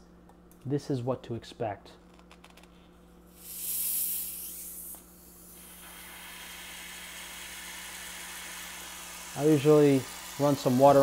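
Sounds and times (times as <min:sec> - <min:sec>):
gas hissing from bottle: 0:03.3 - 0:11.0
steady fizzing foam: 0:05.5 - 0:11.0.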